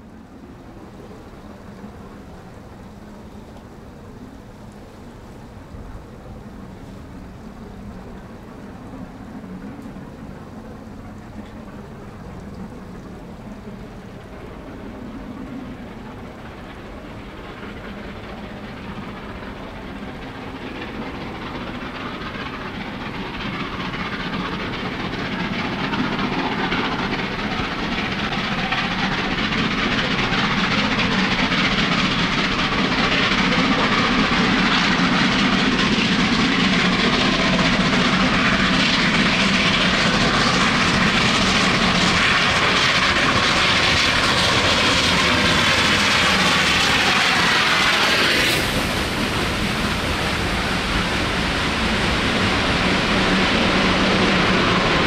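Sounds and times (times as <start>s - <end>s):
steam locomotive exhaust beats: 0.0s - 55.0s
rushing hiss of steam: 15.8s - 55.0s.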